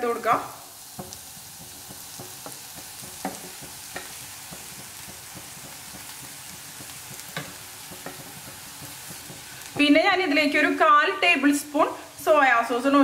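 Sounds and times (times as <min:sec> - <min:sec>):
food sizzling in a frying pan: 0:00.0 - 0:13.0
spatula scraping a pan: 0:00.8 - 0:09.9.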